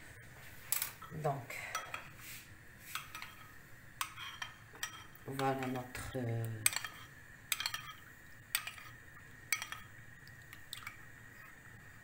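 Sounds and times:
utensil clinking against container: 0:06.6 - 0:11.0.

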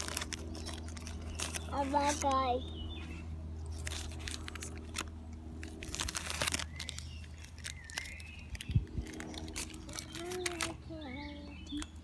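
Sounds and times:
candy bar crunching: 0:00.0 - 0:02.4, 0:03.6 - 0:10.8
bird chirping: 0:00.4 - 0:03.4, 0:06.3 - 0:12.0.

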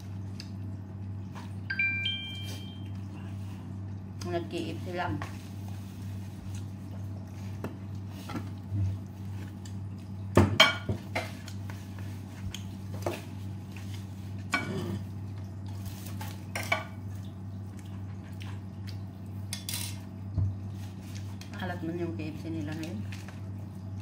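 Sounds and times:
low steady hum: 0:00.0 - 0:24.0
spoon and dishes clinking on glass: 0:19.5 - 0:20.0.

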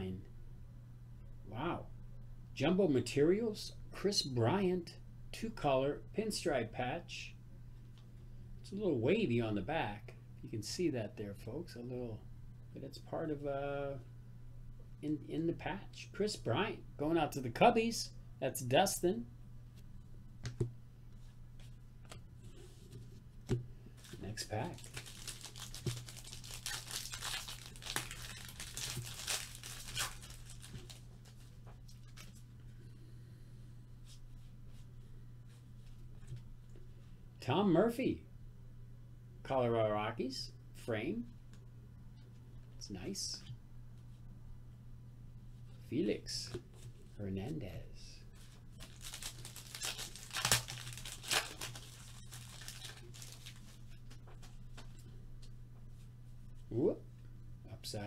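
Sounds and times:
wrapper tearing and crinkling: 0:24.0 - 0:32.4, 0:48.8 - 0:53.9.

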